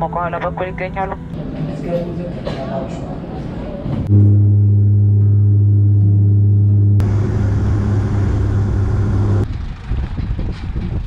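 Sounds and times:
propellers droning: 0:04.1 - 0:09.9.

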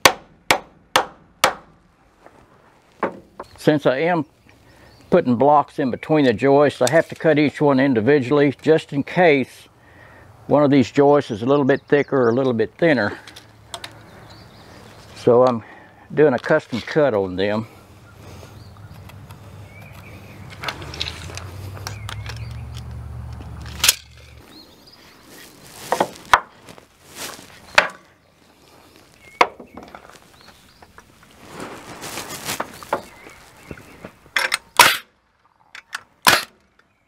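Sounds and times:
wooden knocks and clacks: 0:03.0 - 0:03.5.

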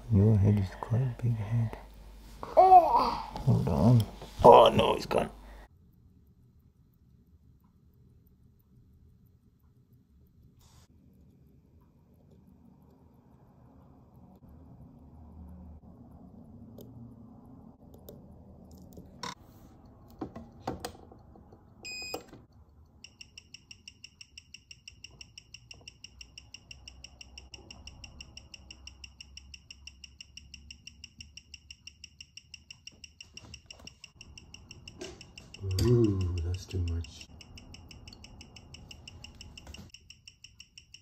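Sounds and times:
watch ticking through speaker: 0:21.9 - 0:41.0
electronic chirp: 0:23.0 - 0:41.0.

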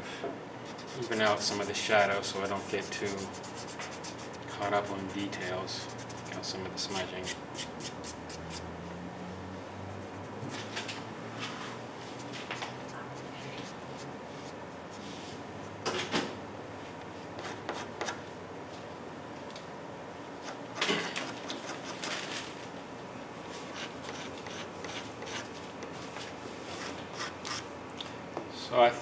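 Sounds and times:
steady room hum: 0:00.0 - 0:29.0
pastel pencil scratching on paper: 0:00.7 - 0:04.4, 0:05.0 - 0:06.5, 0:23.7 - 0:25.4.

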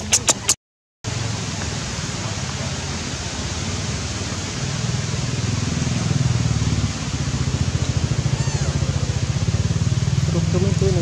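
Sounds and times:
steady high hiss: 0:01.1 - 0:11.0
engine throbbing hum: 0:04.1 - 0:11.0.

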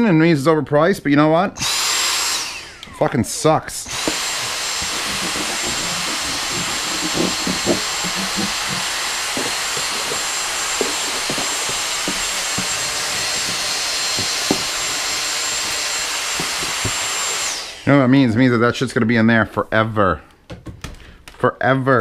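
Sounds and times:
handheld vacuum whining: 0:01.6 - 0:18.3
nozzle clicks and knocks: 0:04.0 - 0:17.2.

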